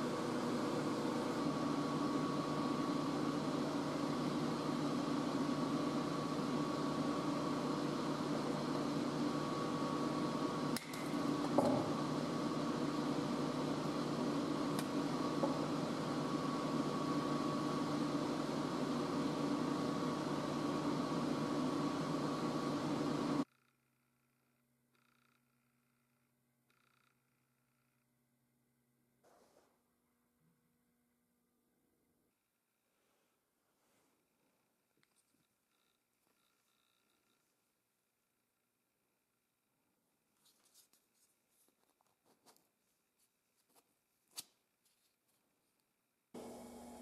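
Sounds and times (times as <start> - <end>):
mechanical hum with tones: 0.0 - 32.2, 35.1 - 37.6, 46.4 - 47.0.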